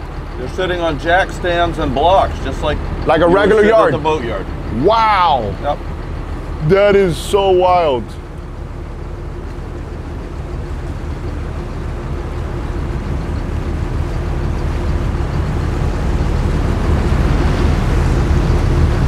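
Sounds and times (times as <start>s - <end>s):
diesel engine rumbling: 0.0s - 19.0s.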